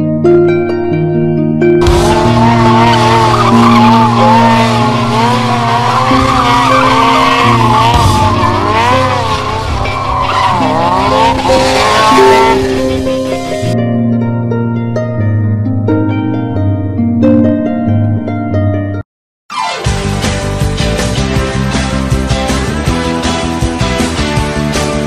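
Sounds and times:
motorcycle tyre squealing: 1.8s - 13.7s.

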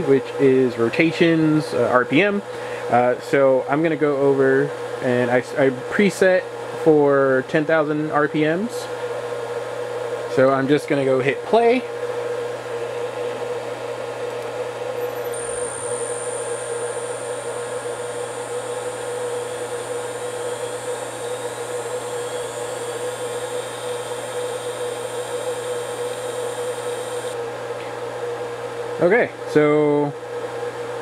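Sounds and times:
steady machine hum: 0.0s - 31.0s
spindle motor high whine: 11.0s - 27.4s.

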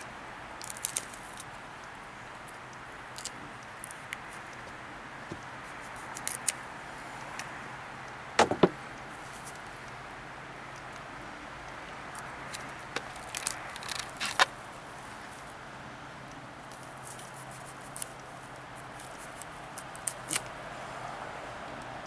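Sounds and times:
clicks and crackles of carcass: 0.6s - 6.6s, 12.0s - 15.5s, 16.6s - 20.6s.

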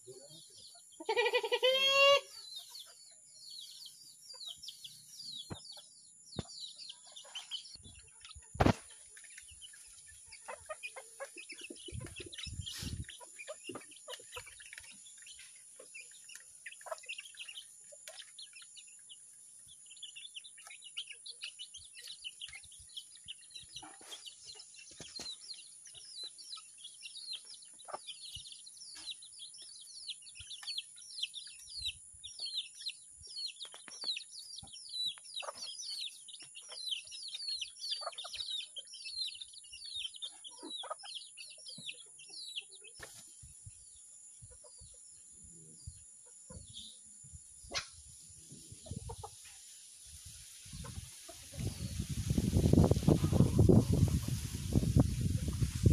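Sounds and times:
chicks chirping: 0.0s - 55.9s
chicken call: 1.0s - 2.4s.

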